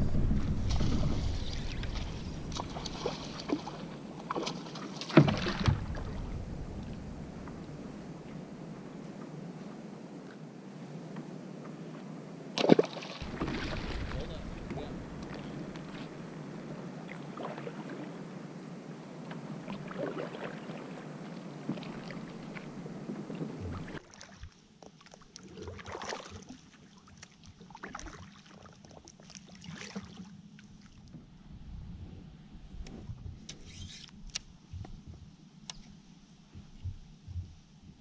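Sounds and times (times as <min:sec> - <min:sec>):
water rushing: 0:00.0 - 0:09.2, 0:12.5 - 0:24.1
paddle strokes splashing: 0:00.0 - 0:09.4, 0:12.5 - 0:31.0.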